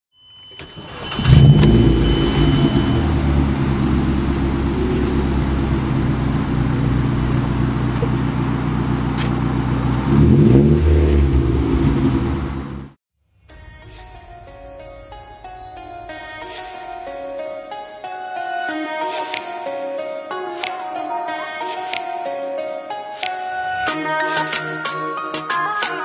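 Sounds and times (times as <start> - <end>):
car engine starting and idling: 0.5 - 17.2
car engine revving: 0.8 - 13.0.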